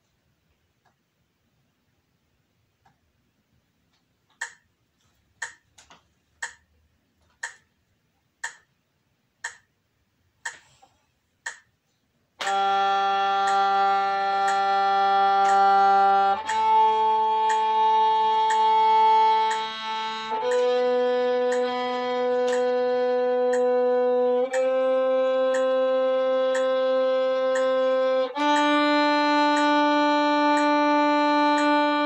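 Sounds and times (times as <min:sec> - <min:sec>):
metronome ticking: 0:04.3 - 0:04.8, 0:05.4 - 0:10.8, 0:11.4 - 0:11.8, 0:12.4 - 0:32.0
violin playing long notes: 0:12.4 - 0:32.0.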